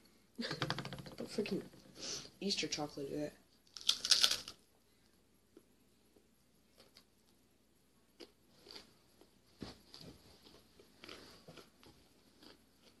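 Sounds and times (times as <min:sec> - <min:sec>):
chewing and crunching: 0:03.7 - 0:04.6, 0:08.1 - 0:13.0.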